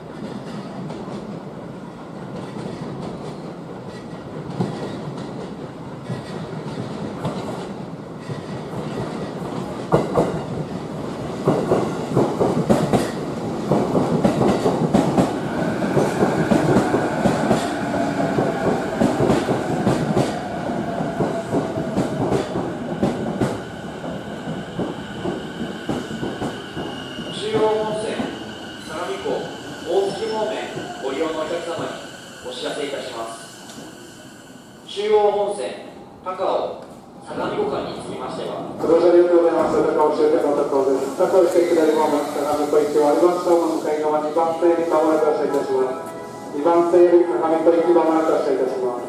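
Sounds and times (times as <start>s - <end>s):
train wheels clacking over rail joints: 2.3s - 10.7s, 11.4s - 20.4s.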